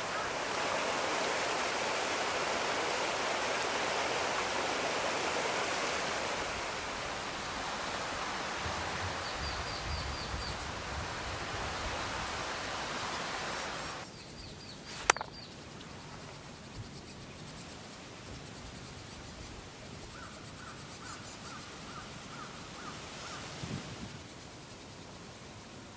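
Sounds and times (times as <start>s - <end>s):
sharp click: 14.9s - 15.4s.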